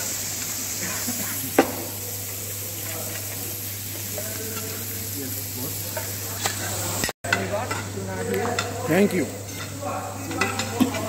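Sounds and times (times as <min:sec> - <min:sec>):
food sizzling on a griddle: 0:00.0 - 0:11.0.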